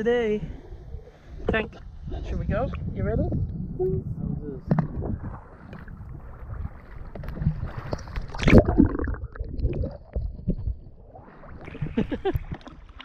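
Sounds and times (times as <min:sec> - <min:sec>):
low rumble: 0:00.4 - 0:06.8
water lapping against kayak hull: 0:00.6 - 0:13.0.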